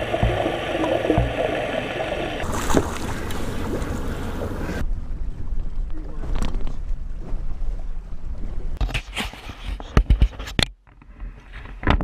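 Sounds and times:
wind and water rushing: 0.0s - 5.4s
muffled underwater water rush: 0.0s - 5.7s.

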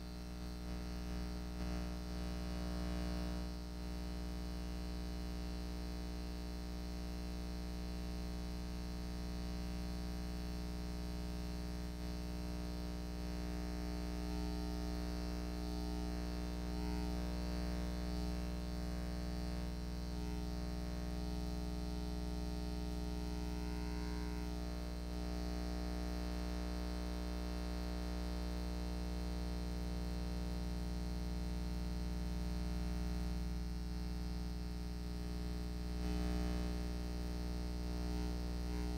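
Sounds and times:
electrical hum: 11.2s - 26.6s, 32.4s - 38.9s.

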